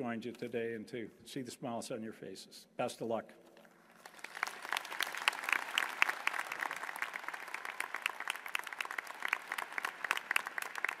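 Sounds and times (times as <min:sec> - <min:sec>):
audience clapping: 0:03.9 - 0:11.0.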